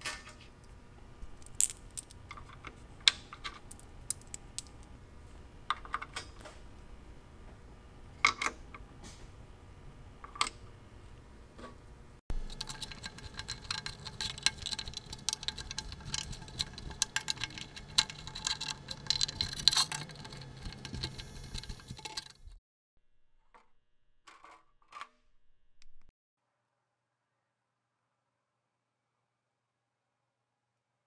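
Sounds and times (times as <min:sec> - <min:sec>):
screwdriver scraping in screw slots: 0:12.5 - 0:22.4.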